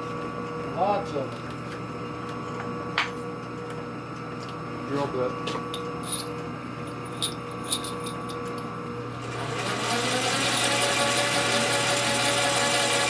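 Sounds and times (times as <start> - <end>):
metal lathe running with whine: 9.1 - 13.0.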